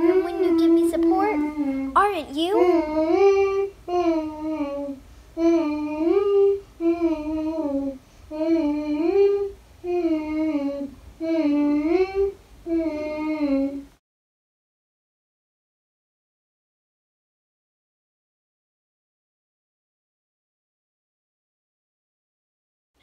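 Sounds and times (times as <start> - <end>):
young girl singing wordless tune: 0.0 - 14.0.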